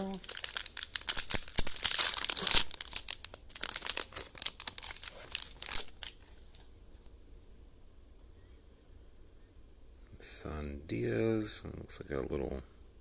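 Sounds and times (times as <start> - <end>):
plastic wrapper crinkling and tearing: 0.0 - 6.7.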